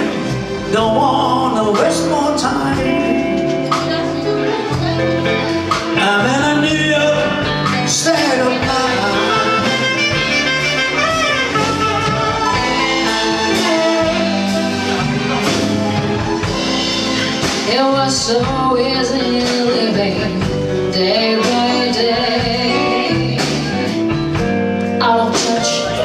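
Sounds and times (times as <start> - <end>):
person singing: 0.0 - 24.4, 25.0 - 26.0
live band playing jazz-blues: 0.0 - 26.0
saxophone: 8.4 - 17.9.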